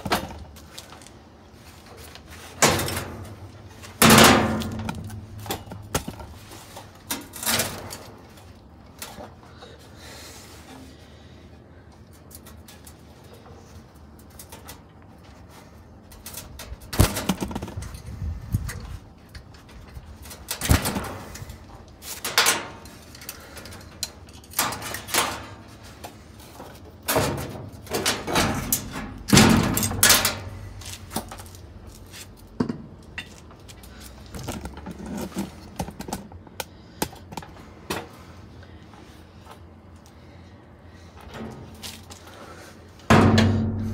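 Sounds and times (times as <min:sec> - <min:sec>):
metal parts knocking and scraping: 0:02.5 - 0:08.4, 0:16.0 - 0:36.4.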